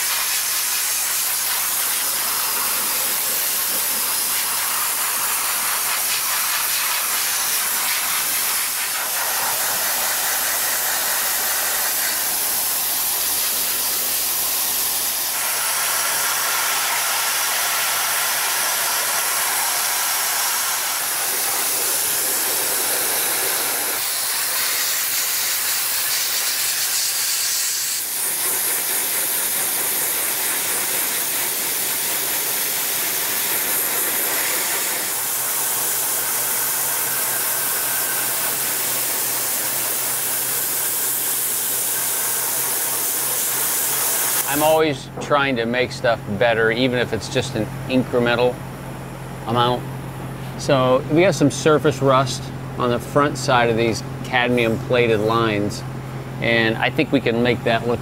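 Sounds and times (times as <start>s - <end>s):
dry ice blaster hissing: 0.0s - 45.0s.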